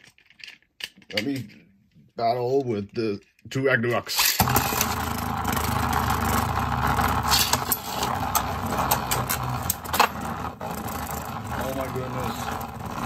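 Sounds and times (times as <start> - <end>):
spinning tops whirring: 4.2 - 13.0.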